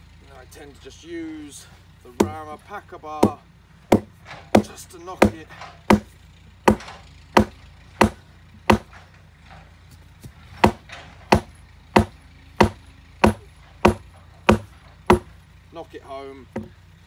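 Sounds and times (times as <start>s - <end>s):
steel bar striking wooden post: 2.2s - 2.4s, 3.2s - 9.1s, 10.6s - 15.3s.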